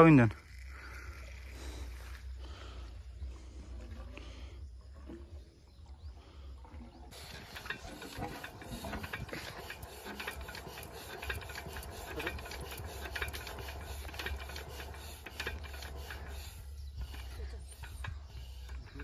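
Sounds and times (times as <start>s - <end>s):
diesel engine knocking: 7.4s - 16.5s.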